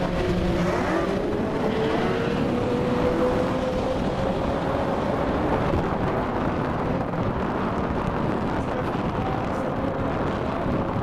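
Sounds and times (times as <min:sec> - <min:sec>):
distant race car engines rumbling: 0:00.0 - 0:11.0.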